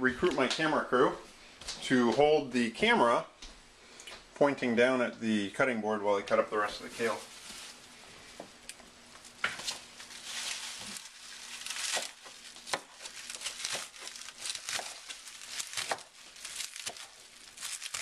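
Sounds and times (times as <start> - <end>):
kale leaves rustling and crinkling: 6.6 - 18.0.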